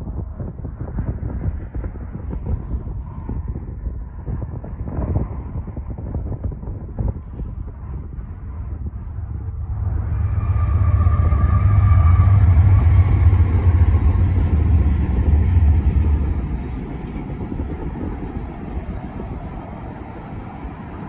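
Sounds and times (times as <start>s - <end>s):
diesel locomotive engine rumble: 0.0s - 21.0s
freight cars rolling on rails: 9.1s - 21.0s.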